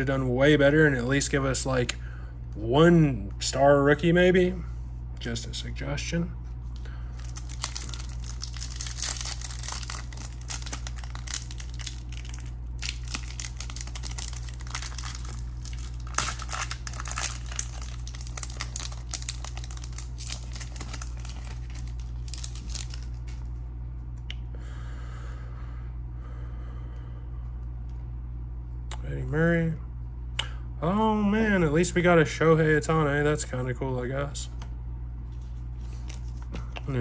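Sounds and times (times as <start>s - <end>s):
foil wrapper crinkling and tearing: 6.7s - 23.5s.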